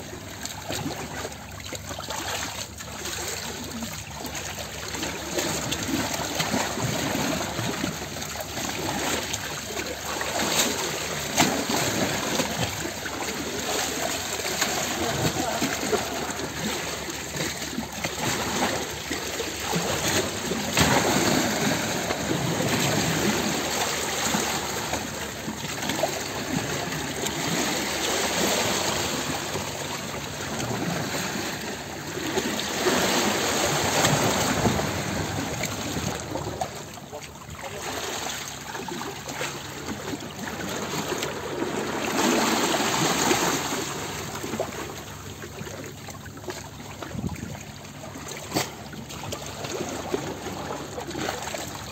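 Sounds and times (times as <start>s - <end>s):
water splashing and rushing: 0.0s - 51.9s.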